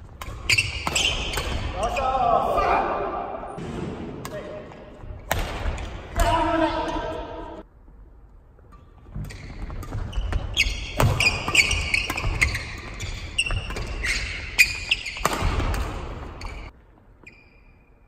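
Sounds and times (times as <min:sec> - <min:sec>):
racket hitting shuttlecock: 0:00.0 - 0:01.8, 0:05.2 - 0:06.3, 0:09.1 - 0:16.7
court shoes squeaking: 0:00.0 - 0:02.0, 0:08.6 - 0:18.0.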